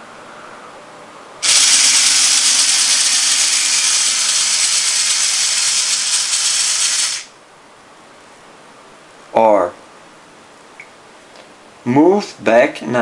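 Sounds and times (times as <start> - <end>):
robot drive motors whirring: 1.4 - 7.3.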